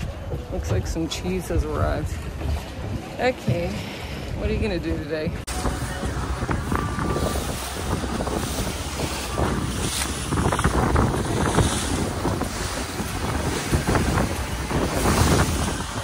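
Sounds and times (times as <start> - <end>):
water slapping against hull: 0.0 - 16.0
wind buffeting microphone: 0.0 - 16.0
outboard motor running: 5.5 - 16.0.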